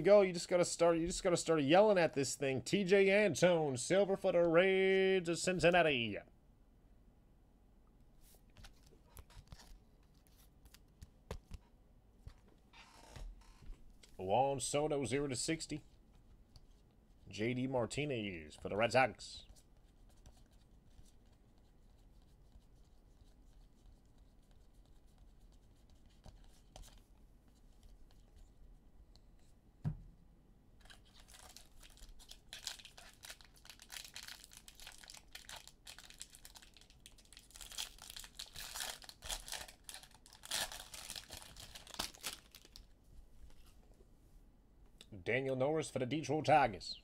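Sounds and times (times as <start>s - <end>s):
wrapper tearing and crinkling: 30.8s - 42.9s.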